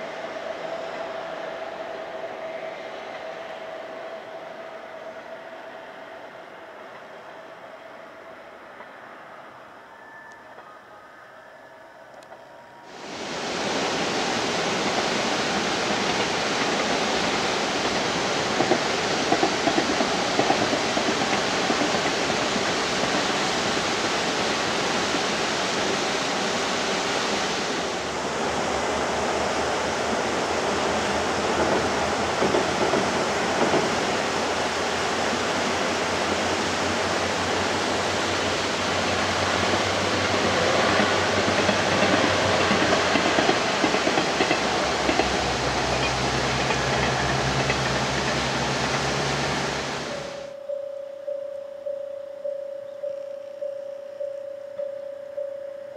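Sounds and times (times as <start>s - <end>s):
diesel railcar hum: 0.0s - 50.7s
steady rushing noise: 12.9s - 50.5s.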